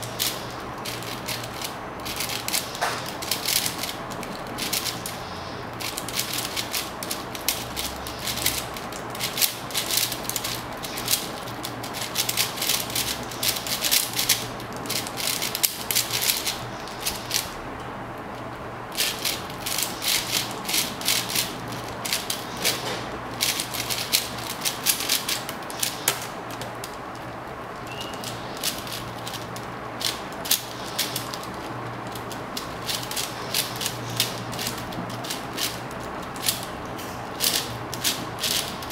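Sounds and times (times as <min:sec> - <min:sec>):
speed cube clicking and rattling: 0:00.0 - 0:17.6, 0:18.2 - 0:38.9.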